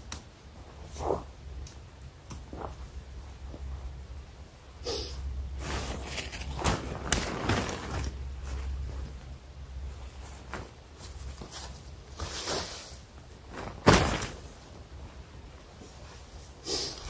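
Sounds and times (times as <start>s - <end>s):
low steady rumble: 0.4s - 12.1s
tent fabric rustling: 2.3s - 4.3s, 5.5s - 17.0s
tent pole scraping: 5.6s - 8.8s.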